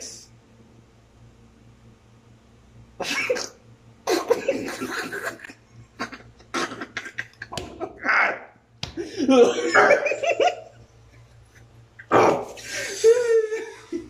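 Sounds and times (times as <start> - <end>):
men coughing: 3.0 - 5.4, 6.0 - 8.0
men laughing: 4.1 - 8.1, 9.0 - 10.8, 12.6 - 14.0.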